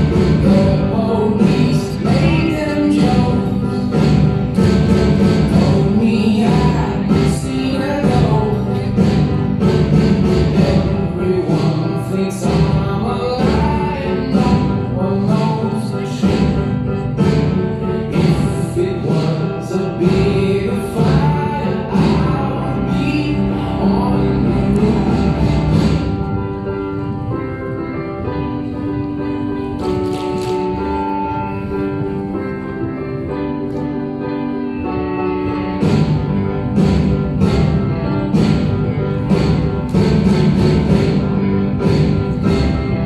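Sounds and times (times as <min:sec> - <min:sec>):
singing over a steady beat: 0:00.0 - 0:26.3
held instrumental tones: 0:00.0 - 0:43.0.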